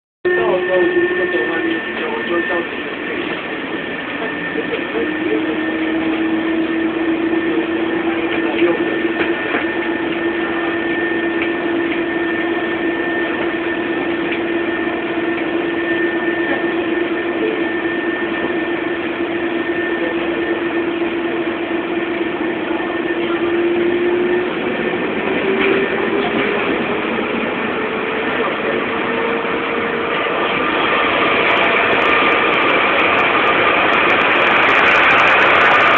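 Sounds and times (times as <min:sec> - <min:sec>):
fainter higher tone: 0:00.3 - 0:02.8
train motor whine: 0:00.3 - 0:35.9
train rolling noise: 0:00.3 - 0:35.9.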